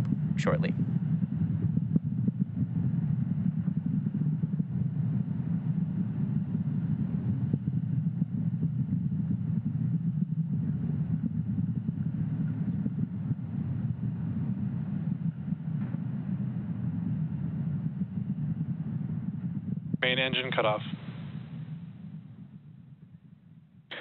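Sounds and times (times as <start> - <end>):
rocket engines rumbling: 0.0 - 24.0.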